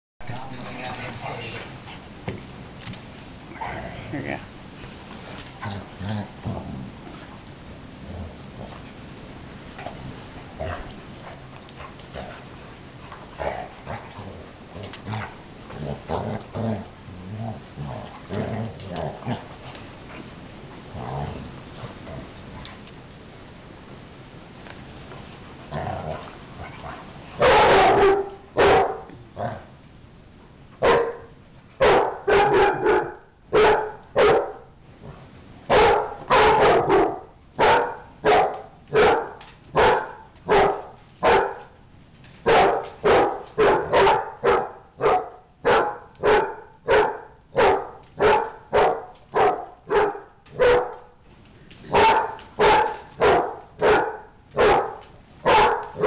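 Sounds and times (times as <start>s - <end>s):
dog barking: 27.4s - 29.1s, 30.8s - 34.6s, 35.7s - 41.7s, 42.5s - 51.1s, 51.9s - 56.0s.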